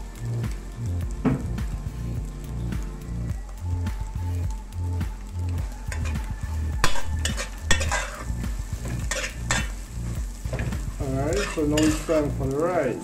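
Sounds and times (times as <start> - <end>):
food sizzling in oil: 0.0 - 13.0
metal spoon scraping a pot: 6.9 - 8.3, 9.1 - 9.7, 11.3 - 12.1.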